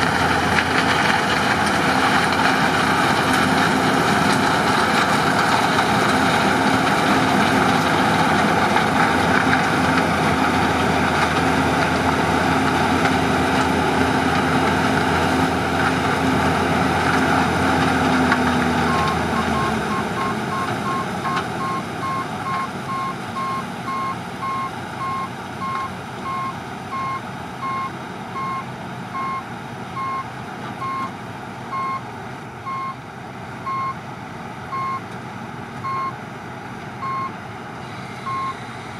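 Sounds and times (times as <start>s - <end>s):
combine harvester running: 0.0s - 38.9s
reversing alarm beeping: 18.9s - 28.6s, 30.0s - 30.2s, 31.7s - 32.0s, 32.7s - 33.0s, 33.7s - 34.0s, 35.9s - 36.2s, 38.2s - 38.6s.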